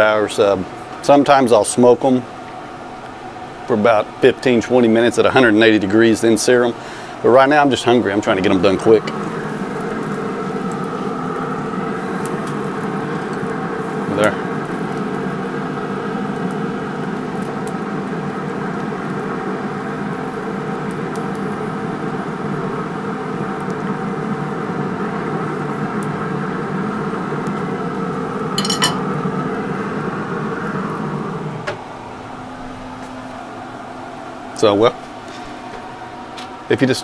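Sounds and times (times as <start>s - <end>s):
grill humming: 0.0s - 37.0s
sausages sizzling on grate: 5.3s - 31.4s
metal tongs clinking on grate: 28.6s - 29.0s.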